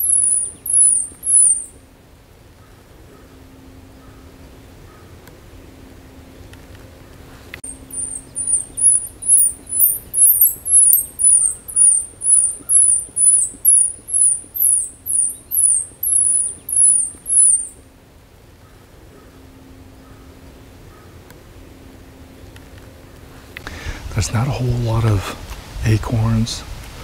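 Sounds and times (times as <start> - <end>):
shrill squirrel distress call: 0.0 - 1.8, 7.6 - 17.8.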